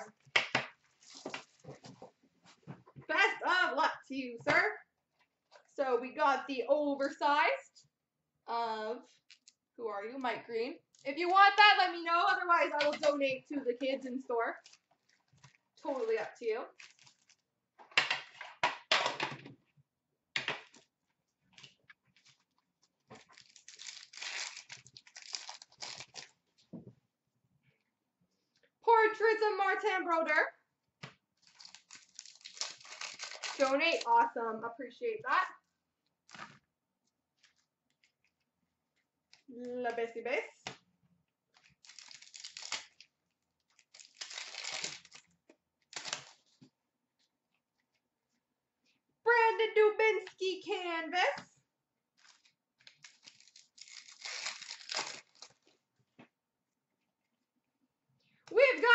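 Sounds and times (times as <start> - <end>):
foil wrappers crinkling and tearing: 16.8 - 17.4, 23.2 - 26.4, 31.4 - 34.2, 41.6 - 46.4, 52.2 - 55.7.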